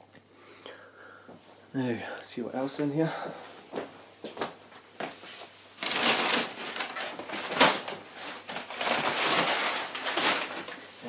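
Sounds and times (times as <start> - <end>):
packing paper rustling and crinkling: 5.3 - 11.0.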